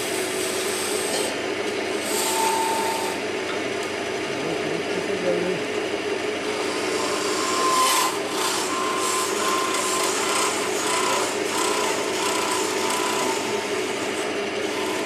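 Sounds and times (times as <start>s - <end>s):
lathe motor hum: 0.0s - 15.0s
turning tool scraping wood: 6.6s - 15.0s.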